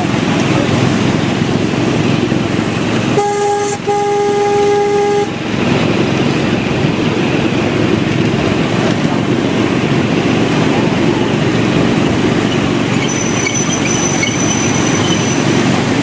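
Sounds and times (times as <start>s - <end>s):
train running on track: 0.0s - 16.0s
train whistle toots: 3.1s - 5.3s.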